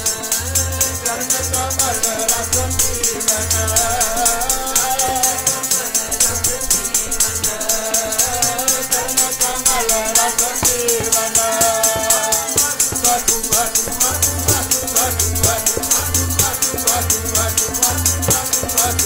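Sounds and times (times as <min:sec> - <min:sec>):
hand percussion rattle: 0:00.0 - 0:19.0
harmonium: 0:00.0 - 0:19.0
voices singing a hymn: 0:00.0 - 0:19.0.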